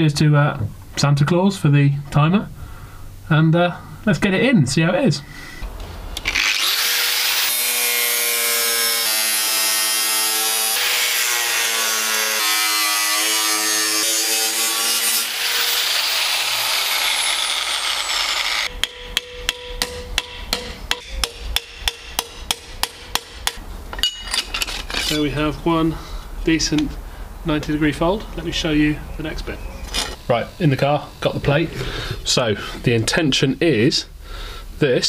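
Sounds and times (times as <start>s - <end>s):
angle grinder cutting sheet metal: 6.2s - 18.8s
hammer striking metal: 18.7s - 25.2s.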